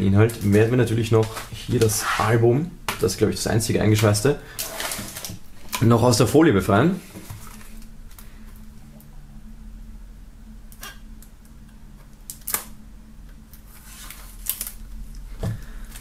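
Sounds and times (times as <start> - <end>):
low steady hum: 0.0 - 16.0
knife slitting plastic film: 13.8 - 14.8.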